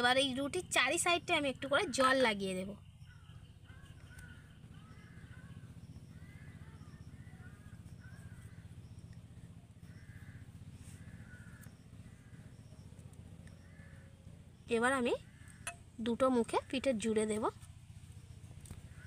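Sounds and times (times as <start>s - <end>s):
steady low hum: 0.0s - 19.0s
crows cawing: 3.1s - 8.9s, 9.8s - 12.8s, 13.5s - 14.4s, 15.2s - 16.0s, 18.7s - 19.0s.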